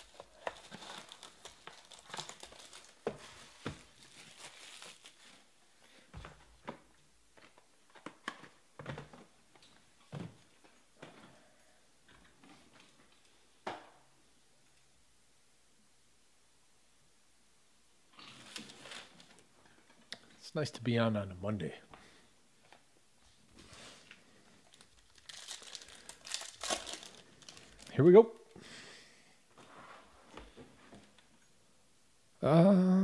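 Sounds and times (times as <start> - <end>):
plastic shrink wrap crinkling: 0.0 - 5.7, 18.2 - 19.9, 23.6 - 28.5.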